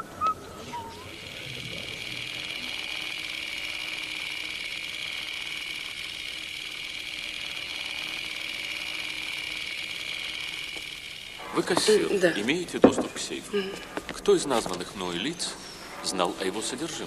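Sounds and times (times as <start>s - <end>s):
high-pitched mechanical whirr: 0.0s - 17.0s.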